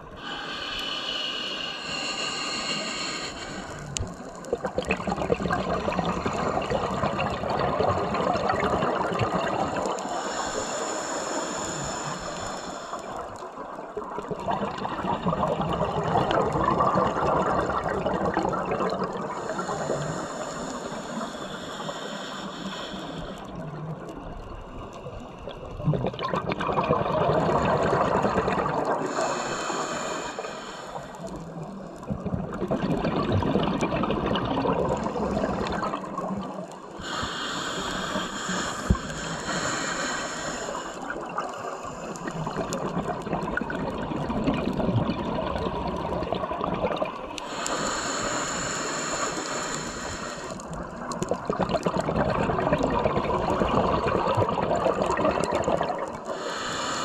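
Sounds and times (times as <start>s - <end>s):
breathing through scuba regulator: 0.0s - 13.8s, 15.6s - 25.5s, 27.2s - 32.0s, 33.6s - 44.0s, 47.3s - 51.6s, 52.6s - 57.0s
bubbling exhaust: 1.8s - 13.1s, 25.7s - 31.3s, 32.0s - 57.0s.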